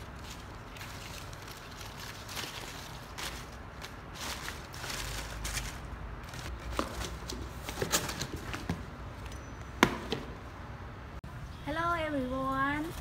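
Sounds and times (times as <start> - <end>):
leaves rustling: 0.0 - 8.6.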